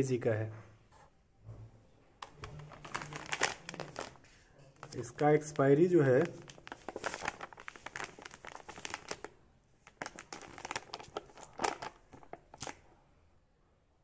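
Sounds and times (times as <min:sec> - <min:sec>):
plastic pouch crinkling: 0:02.2 - 0:12.9.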